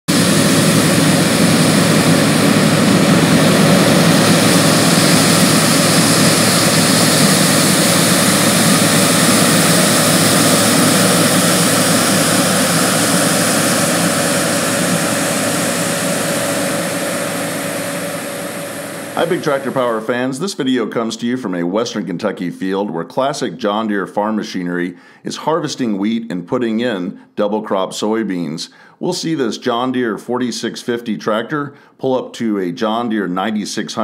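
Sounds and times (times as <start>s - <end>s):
combine harvester mechanical drone: 0.1s - 20.3s
faint steady whine: 0.1s - 20.3s.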